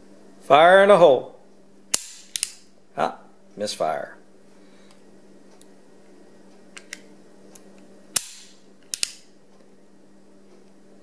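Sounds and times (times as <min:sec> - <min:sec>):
cap pistol bang: 0:01.9 - 0:02.5, 0:08.2 - 0:09.2
cap pistol clicks: 0:01.9 - 0:02.6, 0:08.2 - 0:09.2.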